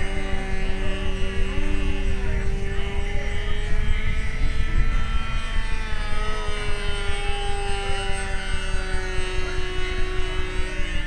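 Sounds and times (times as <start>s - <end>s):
model airplane engine buzzing: 0.0s - 11.0s.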